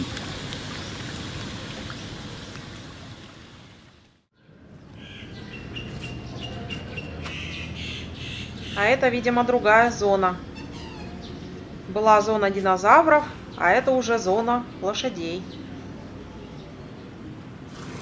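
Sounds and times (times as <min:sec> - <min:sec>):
fish splashing water: 0:00.0 - 0:04.2.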